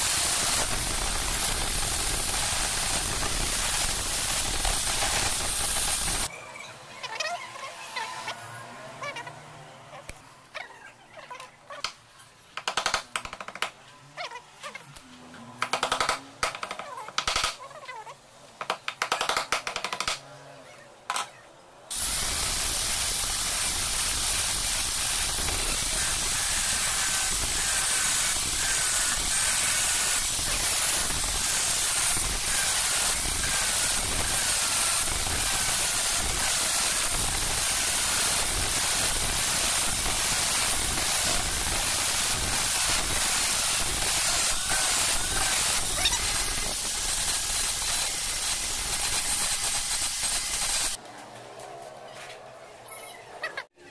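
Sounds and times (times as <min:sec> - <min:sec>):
angle grinder cutting steel: 0:00.0 - 0:06.3, 0:21.9 - 0:51.0.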